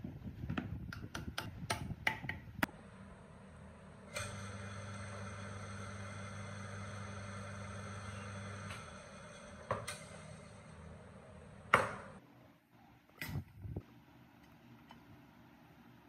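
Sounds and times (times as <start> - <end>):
electric motor humming and whining: 2.6 - 12.2.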